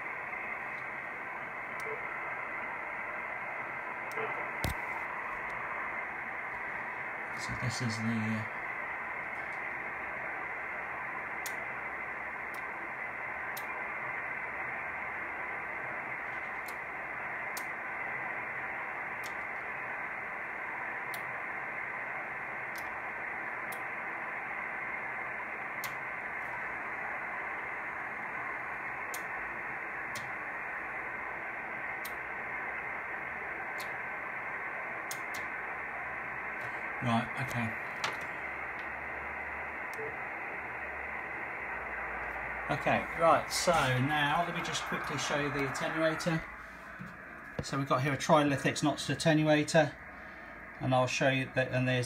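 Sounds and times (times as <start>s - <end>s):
radio receiver hiss: 0.0s - 52.0s.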